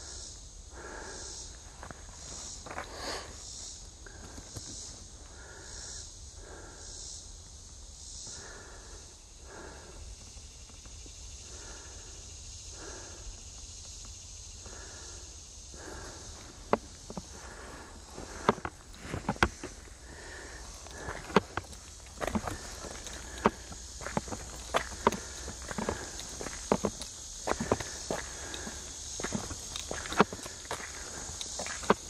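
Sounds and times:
high pulsing insect buzz: 0.0s - 32.0s
footsteps on dirt trail: 1.8s - 3.1s, 15.8s - 32.0s.

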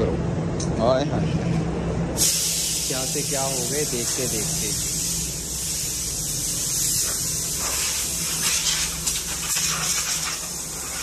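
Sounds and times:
low machine hum: 0.0s - 9.8s
hose spraying water: 2.2s - 11.0s.

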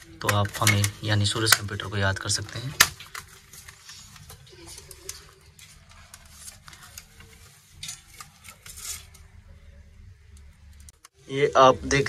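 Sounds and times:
plastic and metal parts scraping: 0.0s - 9.4s.

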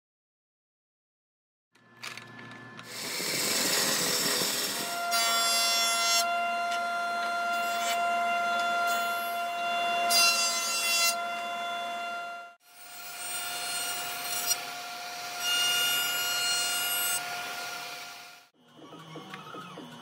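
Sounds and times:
jointer whining: 1.8s - 10.1s, 18.6s - 20.0s
power saw cutting wood: 2.0s - 20.0s.

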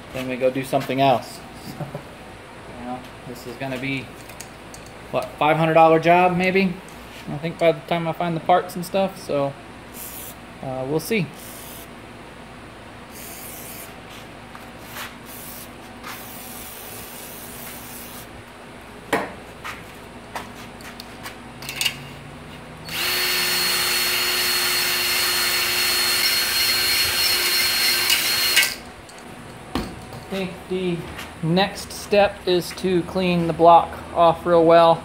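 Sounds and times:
electric drill spinning hone: 22.9s - 28.8s.

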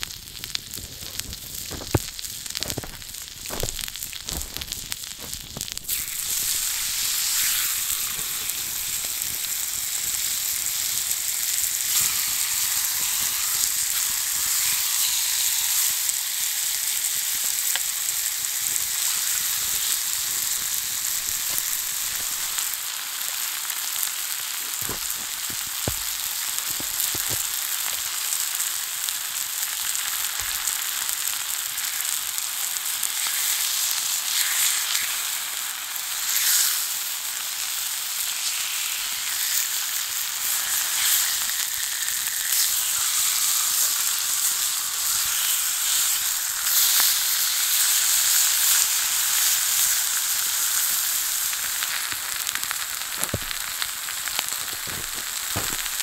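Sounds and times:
steaks sizzling on hot stone: 0.0s - 56.0s.

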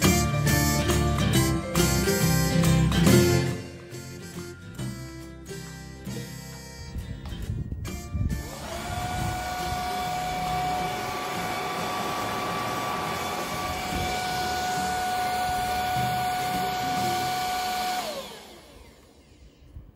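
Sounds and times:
vacuum cleaner whining: 8.4s - 19.9s.

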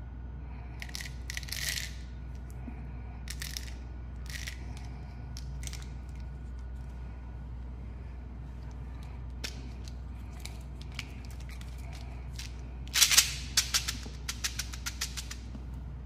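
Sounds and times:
steady low hum: 0.0s - 16.0s
candies rattling in plastic bottle: 3.3s - 5.9s.

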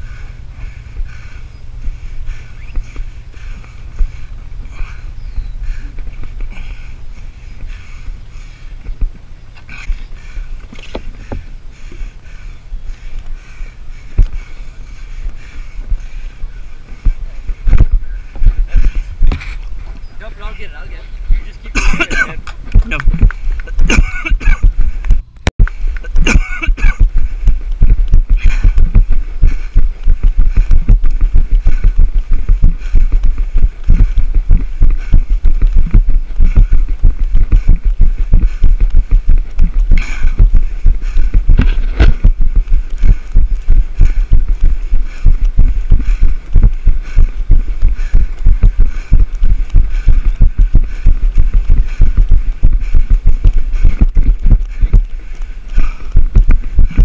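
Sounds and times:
low microphone rumble: 0.0s - 57.0s
running footfalls thumping: 13.0s - 20.0s, 21.3s - 57.0s.

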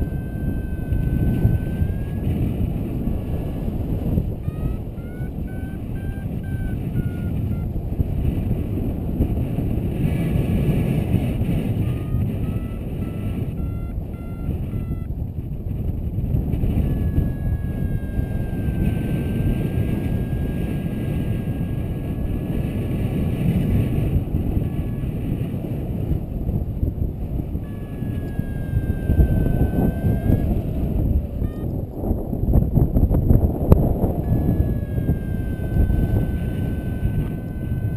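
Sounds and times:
variometer electronic beeping: 0.0s - 7.7s, 11.8s - 15.1s, 16.6s - 22.6s, 27.6s - 32.1s, 34.2s - 37.9s
wind rushing over microphone: 0.0s - 37.9s.

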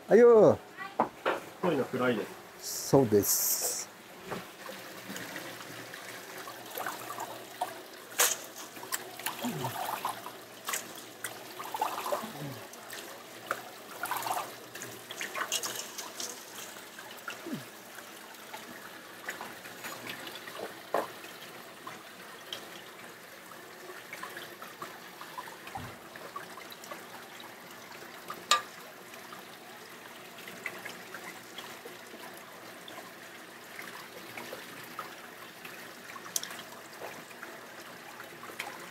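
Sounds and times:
water trickling from a pipe: 1.6s - 38.9s.

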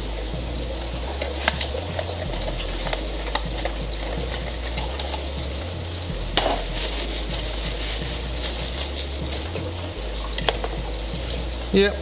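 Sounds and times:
steady low hum: 0.0s - 12.0s
plastic crinkling: 1.1s - 11.0s
cardboard scraping: 1.2s - 9.8s.

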